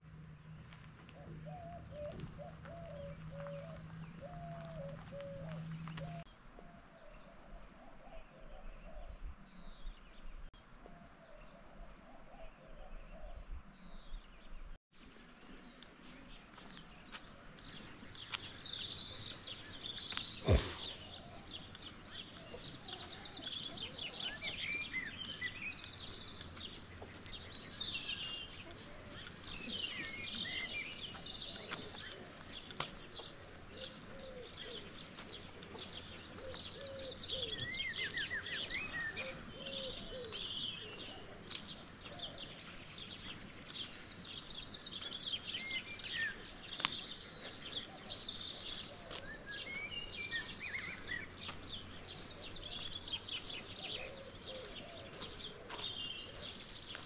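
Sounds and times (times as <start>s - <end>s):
small birds chirping and singing: 0.0s - 57.0s
short thump: 20.4s - 21.0s.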